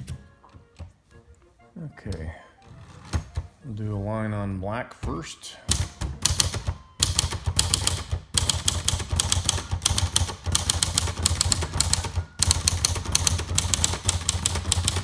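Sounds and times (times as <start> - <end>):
manual typewriter typing: 5.1 - 15.0.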